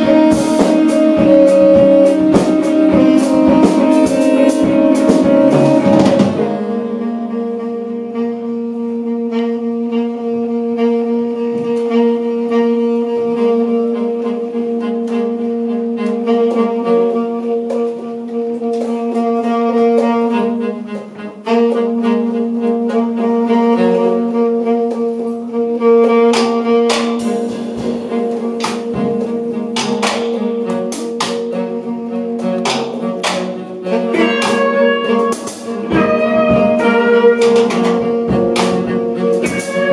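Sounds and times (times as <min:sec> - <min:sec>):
drum and cymbal hits: 0:00.0 - 0:07.2, 0:24.8 - 0:39.9
jazz quartet playing: 0:00.0 - 0:39.9.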